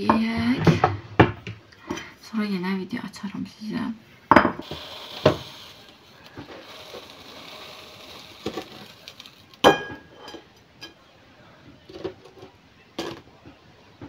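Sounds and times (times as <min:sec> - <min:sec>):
ceramic plate clink: 0:09.6 - 0:11.0.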